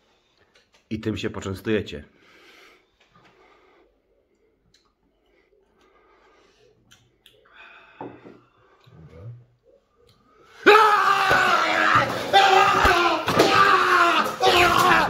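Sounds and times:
soft breathing: 2.1 - 10.6.

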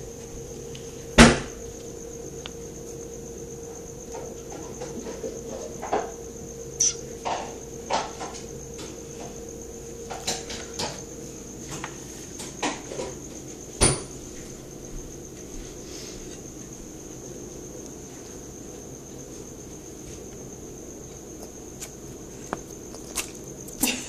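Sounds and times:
high-pitched tone: 6.8 - 7.0.

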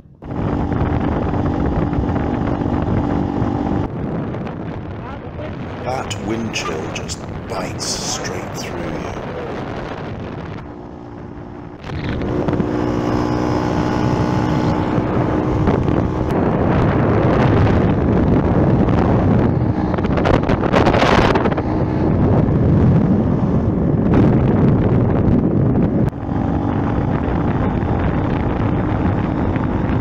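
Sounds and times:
wind noise on microphone: 0.0 - 5.9, 9.1 - 30.0.

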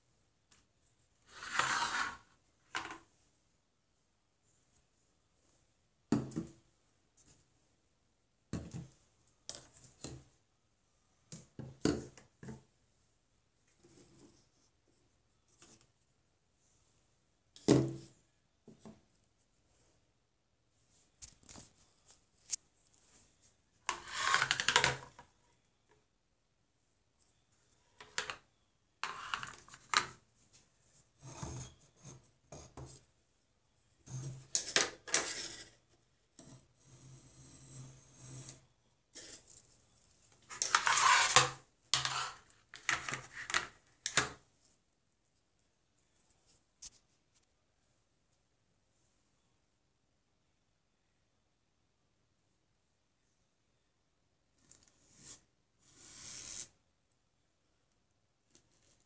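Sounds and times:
rustling scrape: 1.2 - 3.0, 23.9 - 24.8, 40.5 - 43.7.

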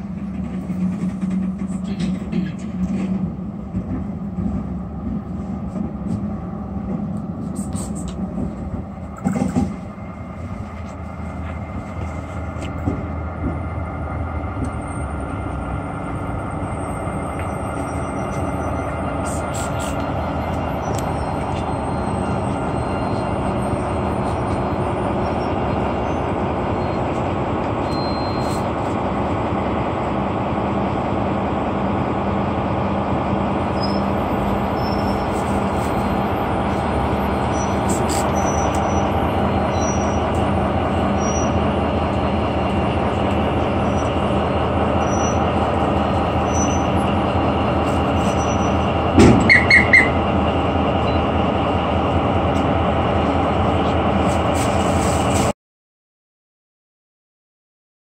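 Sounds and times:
diesel locomotive idling: 0.0 - 55.5.

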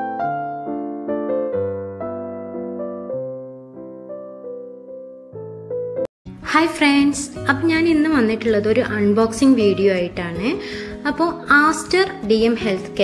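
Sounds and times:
keyboard melody: 0.0 - 6.1.

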